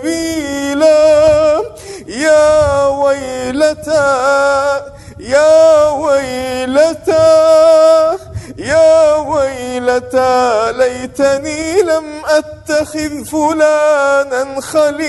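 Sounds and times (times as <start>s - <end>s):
man reciting melodically: 0.0s - 15.0s.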